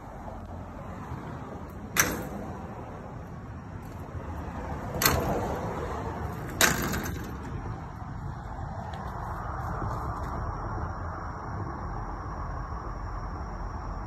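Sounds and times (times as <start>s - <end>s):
wire panels rattling: 1.5s - 8.5s.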